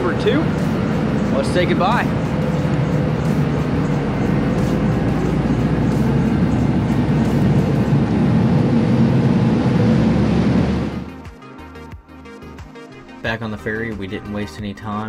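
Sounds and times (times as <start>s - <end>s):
low engine rumble: 0.0s - 11.2s.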